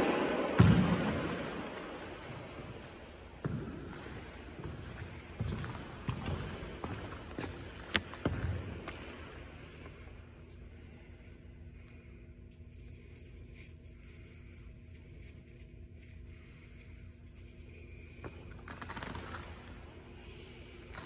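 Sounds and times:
ventilation hum: 0.0s - 21.0s.

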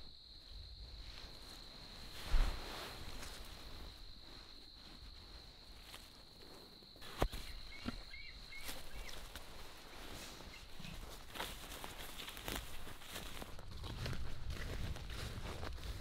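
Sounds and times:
footsteps in leafy undergrowth: 7.0s - 16.0s.

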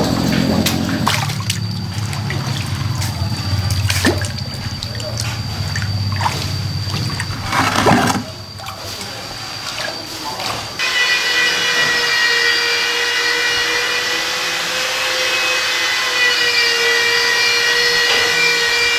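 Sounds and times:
steady low hum: 0.0s - 10.8s
thin high whine: 0.0s - 18.9s
water splashing in a basin: 0.5s - 10.8s
fish thrashing: 0.6s - 10.6s.

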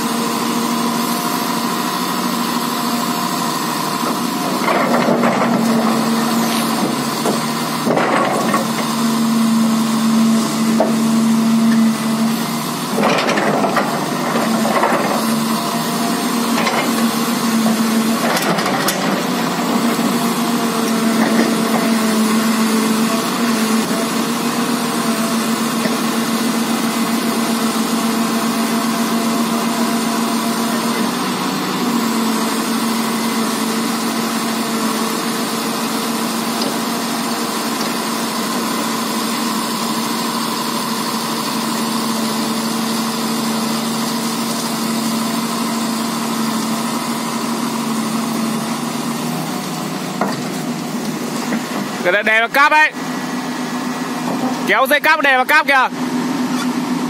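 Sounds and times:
excavator diesel engine droning: 0.0s - 57.0s.

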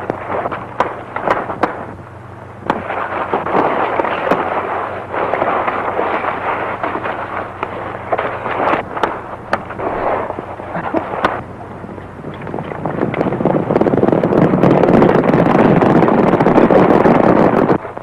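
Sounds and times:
crackling hiss: 0.0s - 18.0s
low steady hum: 0.0s - 18.0s
scuffling: 2.6s - 11.4s.

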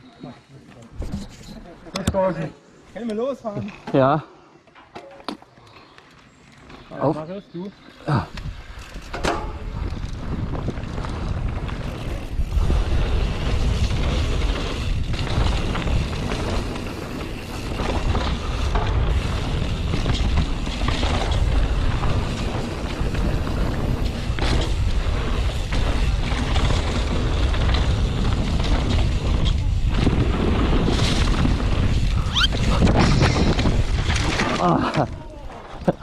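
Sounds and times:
wind rumbling on microphone: 8.1s - 36.0s
tyres rolling on dirt: 8.6s - 36.0s.

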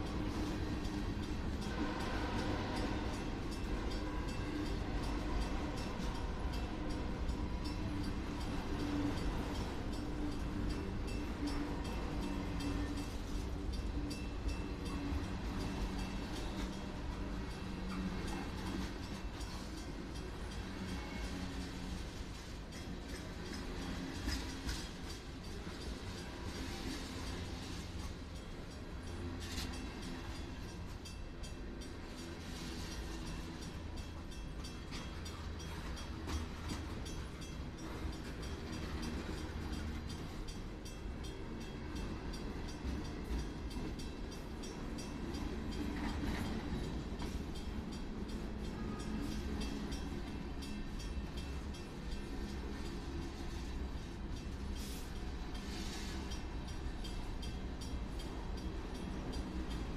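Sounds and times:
train cars clanking: 0.0s - 59.9s
train wheels rumbling on rails: 0.0s - 59.9s.

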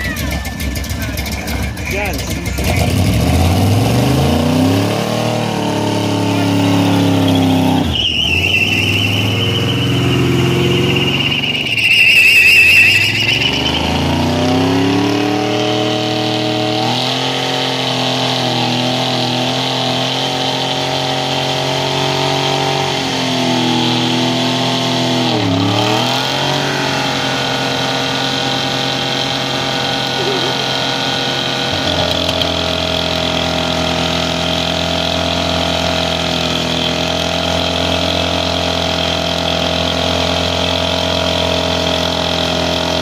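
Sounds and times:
engine revving hard: 2.4s - 43.0s
tyre squealing: 7.2s - 14.8s.

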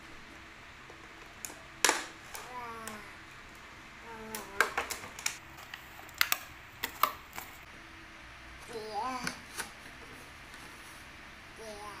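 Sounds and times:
plastic box clicking and crackling: 4.3s - 7.6s.

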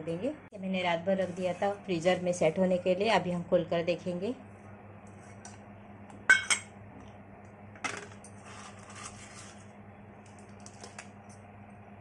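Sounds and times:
aluminium foil crinkling: 8.4s - 11.1s.

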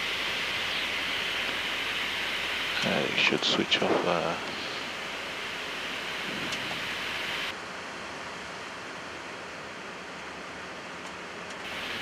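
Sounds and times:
cockpit airy hiss: 0.0s - 7.6s, 11.7s - 12.0s.

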